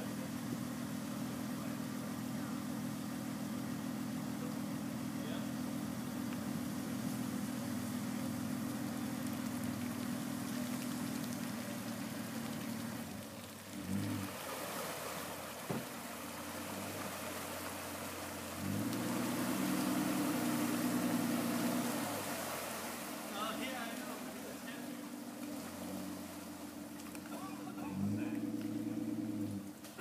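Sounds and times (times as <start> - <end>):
car engine revving: 0.0 - 30.0
water sloshing and splashing: 6.1 - 30.0.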